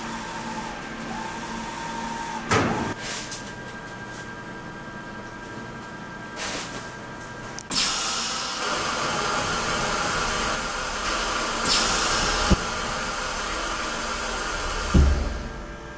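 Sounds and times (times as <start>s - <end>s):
press machine hissing: 7.7s - 15.6s.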